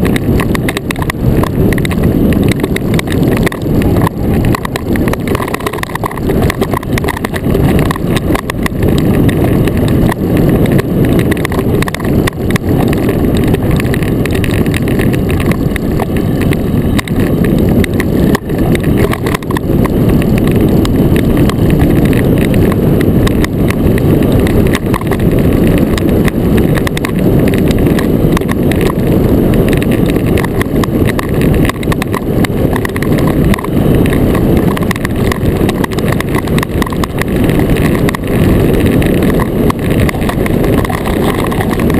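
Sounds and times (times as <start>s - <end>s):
iceboat runners rumbling on ice: 0.0s - 41.9s.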